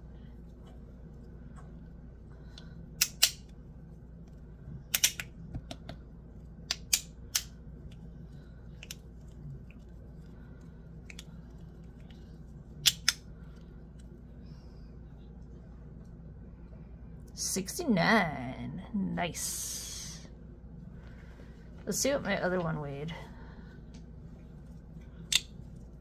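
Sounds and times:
fidget toy clicking snaps: 3.0 - 3.4, 4.9 - 5.8, 6.7 - 7.5, 12.8 - 13.2.

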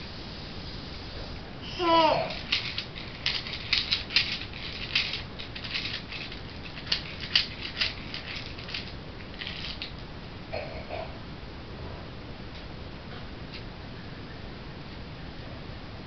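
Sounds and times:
plastic toy rattling: 1.8 - 10.0.

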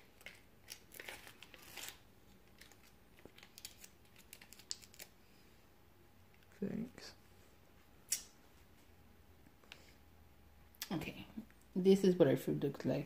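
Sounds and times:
plastic seal crinkling and tearing: 0.0 - 5.2.

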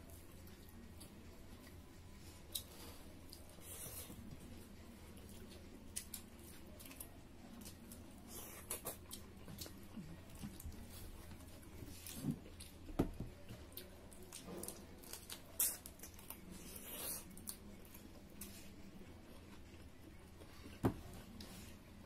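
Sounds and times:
chewing and lip-smacking: 5.0 - 18.6.

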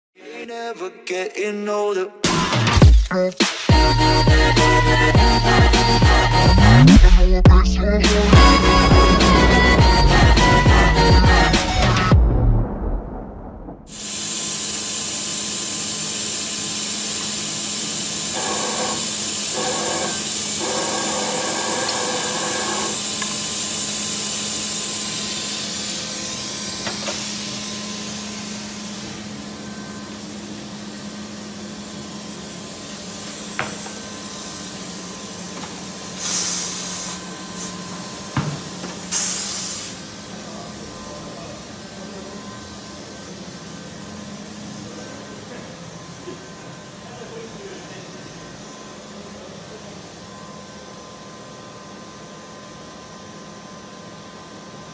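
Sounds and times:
low hum: 3.9 - 13.9
short bursts of air hiss: 13.9 - 20.6, 36.1 - 37.8, 39.0 - 40.0
steady air hiss: 34.2 - 38.3, 39.0 - 40.2.

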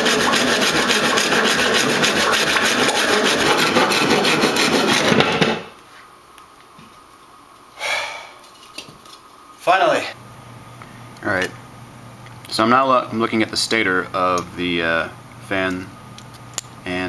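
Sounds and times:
hand saw cutting board: 0.0 - 5.7.

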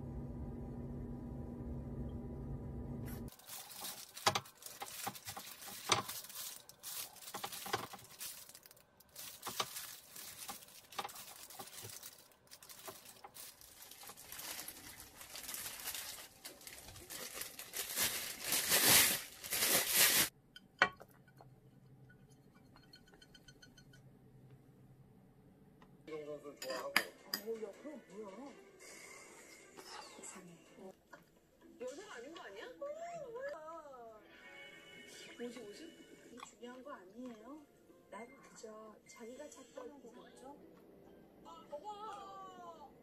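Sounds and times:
plastic gloves crinkling: 3.3 - 20.3.

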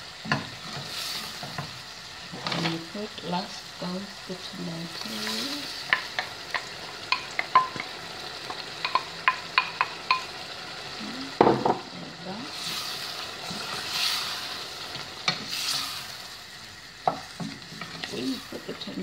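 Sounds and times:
frying sizzle: 0.0 - 19.0
wooden spoon stirring in pot: 5.0 - 10.4, 17.0 - 19.0
spoon tapping pot: 5.2 - 10.4.

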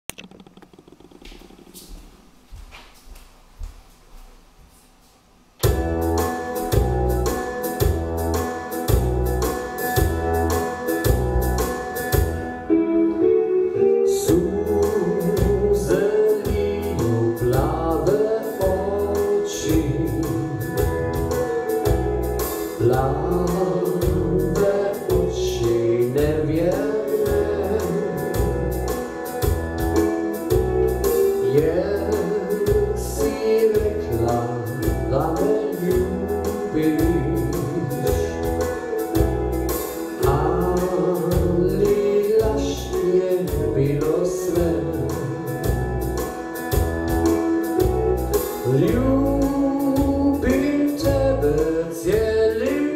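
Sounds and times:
keyboard backing track with bass beat: 5.4 - 52.9
man singing through speakers: 13.8 - 21.0, 22.8 - 29.0, 31.2 - 39.0, 40.1 - 45.8, 48.6 - 52.9.

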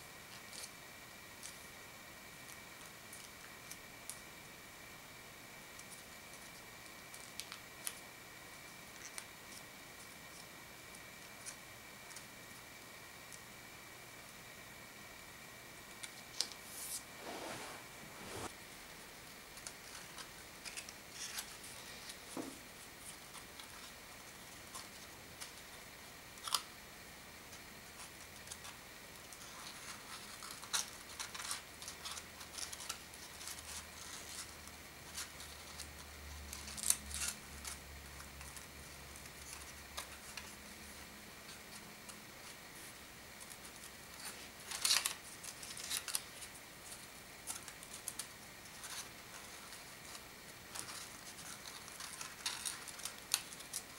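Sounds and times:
paper rustling and crackling: 42.4 - 53.9.

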